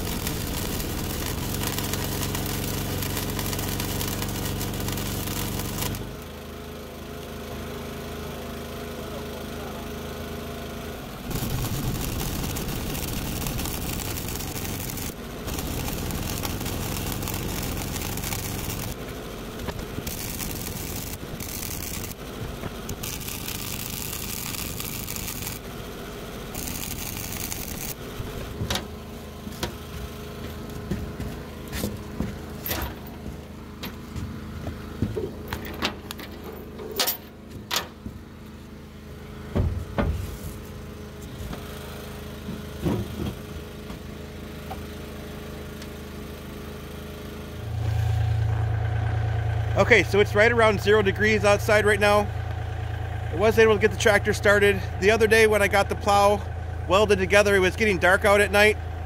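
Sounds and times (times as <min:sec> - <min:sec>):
sharp engine clicks and knocks: 0:00.0 - 0:06.3, 0:11.3 - 0:25.7, 0:26.6 - 0:28.9
vehicle engine running: 0:00.0 - 0:59.0.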